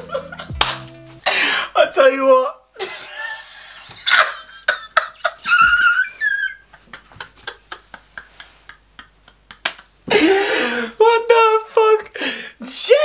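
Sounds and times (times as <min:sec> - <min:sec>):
man laughing hysterically: 0:00.0 - 0:00.6, 0:02.8 - 0:10.9.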